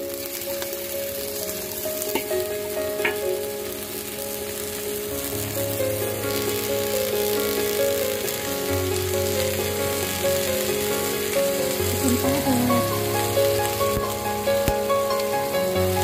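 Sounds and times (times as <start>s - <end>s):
soft background music: 0.0s - 16.0s
vegetables sizzling in hot oil: 0.0s - 16.0s.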